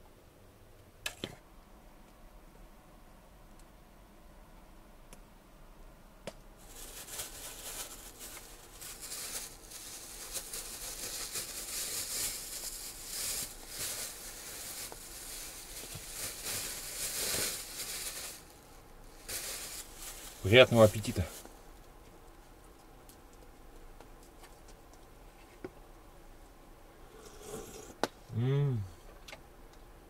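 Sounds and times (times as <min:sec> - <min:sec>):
plastic bag crinkling: 0:06.6 - 0:21.8.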